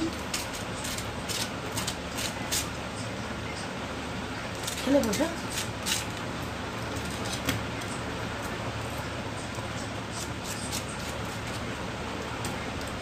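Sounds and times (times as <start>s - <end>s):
knife scraping bread: 0.0s - 2.8s, 4.6s - 6.2s, 6.8s - 11.8s
steady background hum: 0.0s - 13.0s.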